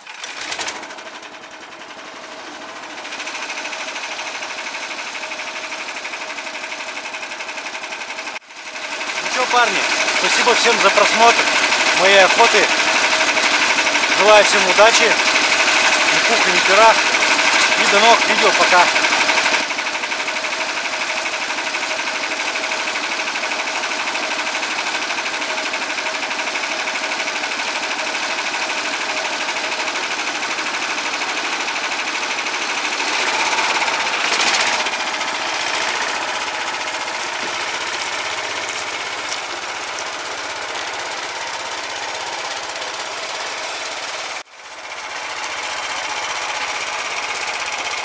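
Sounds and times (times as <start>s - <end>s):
single-cylinder engine knocking: 0.0s - 48.0s.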